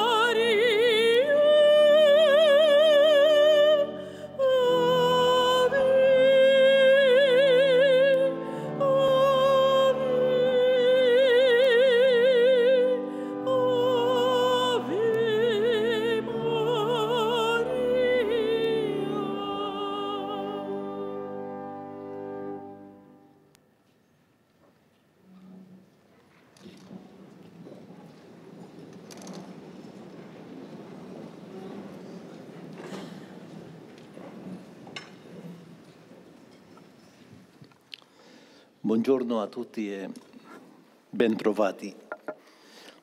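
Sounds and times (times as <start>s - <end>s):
woman singing operatically: 0.0s - 21.6s.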